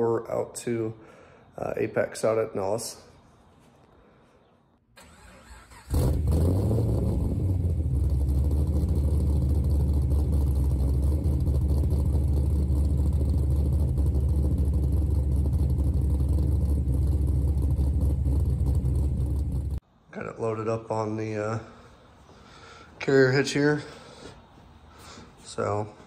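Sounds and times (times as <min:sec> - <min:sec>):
vehicle engine idling: 0:05.0 - 0:19.8.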